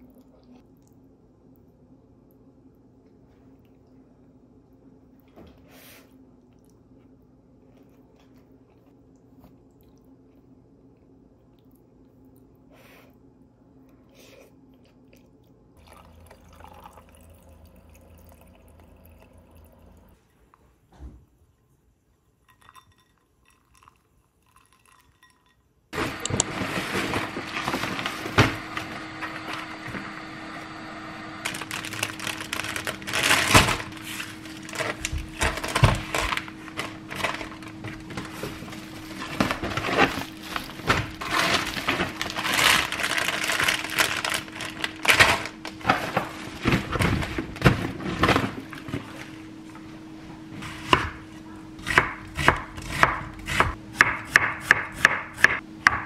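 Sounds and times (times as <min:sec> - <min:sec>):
plastic bags crinkling: 0:31.4 - 0:49.2.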